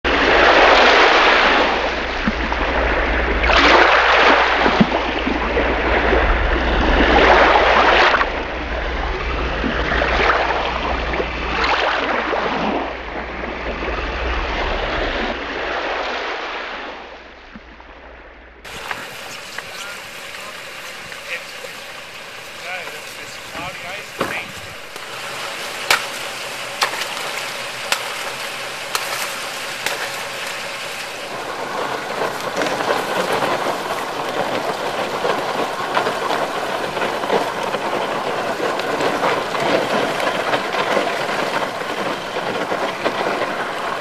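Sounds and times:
steady low hum: 0.1 - 15.5, 17.2 - 43.9
loud rushing noise: 18.7 - 35.8.

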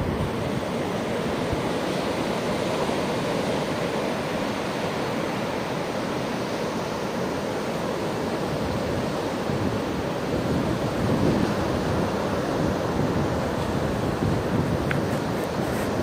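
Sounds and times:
wind on microphone: 0.0 - 2.6, 8.3 - 16.0
ocean surf washing: 0.0 - 16.0.

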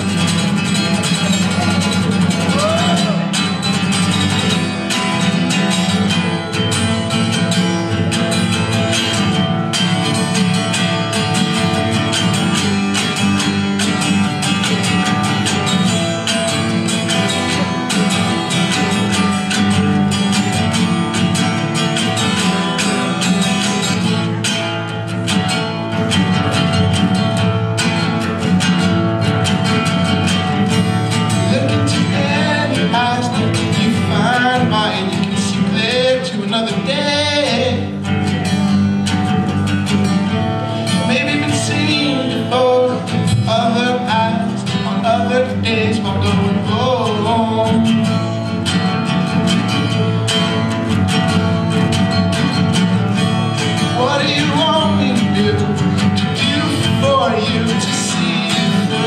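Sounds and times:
man singing: 0.0 - 6.7, 31.1 - 38.0, 40.8 - 48.3, 53.4 - 59.0
acoustic guitar strumming: 0.0 - 59.0.

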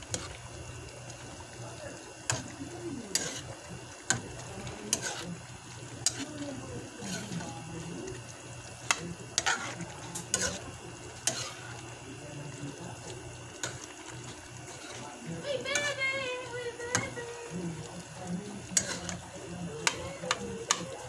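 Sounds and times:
sauce simmering: 0.0 - 21.0
metal spoon clinking on pan: 19.8 - 20.9.

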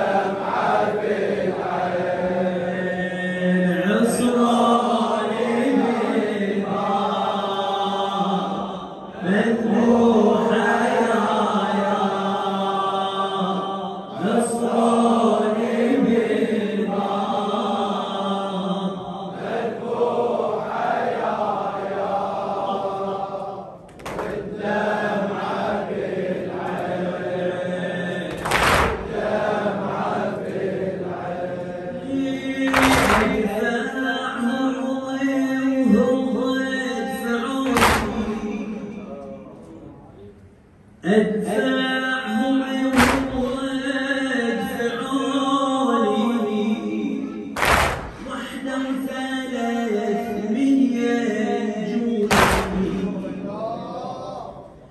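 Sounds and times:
crowd chanting along: 0.0 - 34.6, 36.9 - 39.1, 42.2 - 49.6, 51.9 - 54.9
person chanting into a microphone: 0.0 - 40.4, 41.0 - 54.9
loud chest-beating thumps: 47.6 - 48.3.

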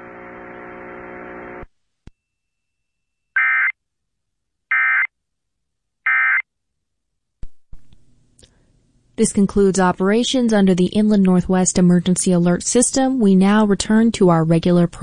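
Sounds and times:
buzzing hum: 0.0 - 1.7.

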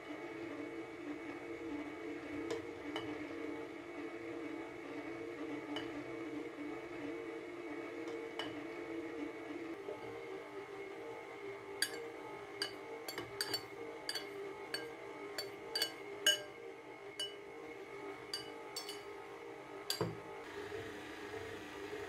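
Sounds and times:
metal spoon tapping glass bowl: 11.8 - 12.0, 12.6 - 16.5, 17.2 - 17.4, 18.3 - 19.1, 19.9 - 20.2
stand mixer motor humming: 19.9 - 22.0.

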